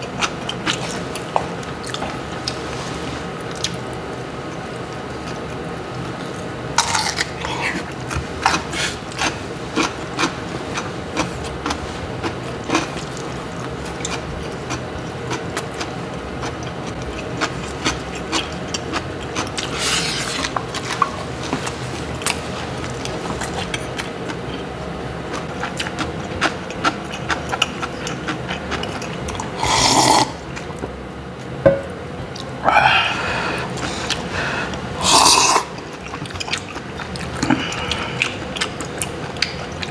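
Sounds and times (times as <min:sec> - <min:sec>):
chewing: 0:06.8 - 0:24.7, 0:25.3 - 0:29.6, 0:35.4 - 0:39.9.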